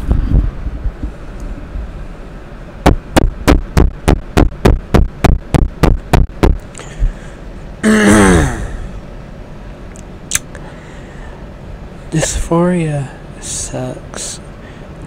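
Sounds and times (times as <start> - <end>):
person humming downward: 7.8 - 9.0.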